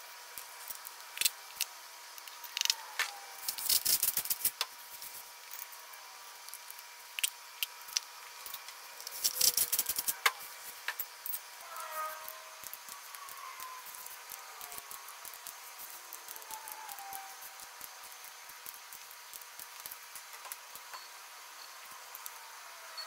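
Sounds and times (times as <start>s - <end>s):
faint steady tone: 20.7s - 23.0s.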